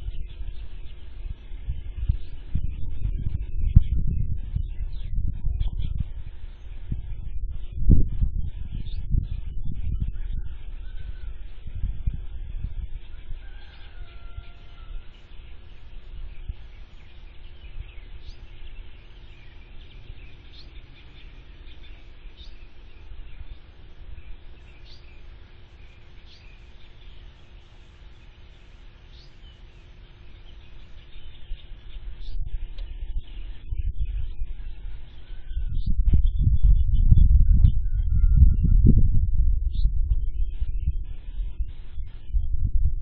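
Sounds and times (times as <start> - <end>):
low rumble: 0.0 - 13.4, 30.9 - 43.0
birds chirping: 0.0 - 39.0, 39.6 - 42.6
faint steady hum: 0.0 - 43.0.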